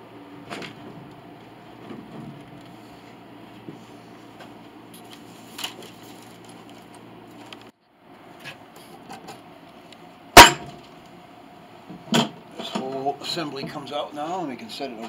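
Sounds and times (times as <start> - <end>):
steady low hum: 0.0 - 15.0
loud sharp knock: 10.4 - 10.8.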